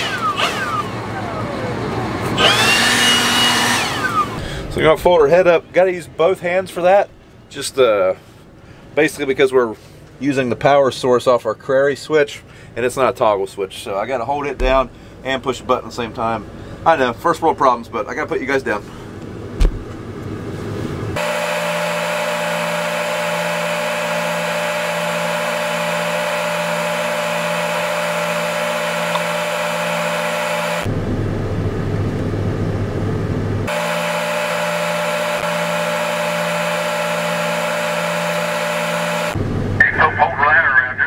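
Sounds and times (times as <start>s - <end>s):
high hydraulic whine: 0.0s - 5.6s, 21.1s - 31.3s, 33.6s - 40.0s
low engine rumble: 0.0s - 10.2s, 12.3s - 21.2s, 30.9s - 33.7s, 39.4s - 41.0s.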